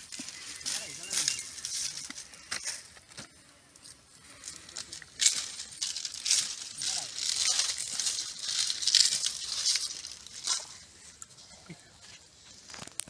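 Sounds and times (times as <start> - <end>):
dry rice grains rattling: 4.7 - 10.7.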